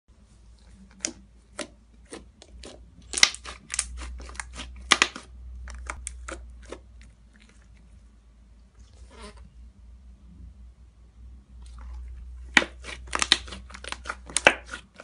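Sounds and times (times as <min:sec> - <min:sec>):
hands squishing fluffy slime: 0:00.3 - 0:08.0, 0:11.6 - 0:15.0
sticky slime pops and crackles: 0:01.0 - 0:06.4, 0:12.5 - 0:14.8.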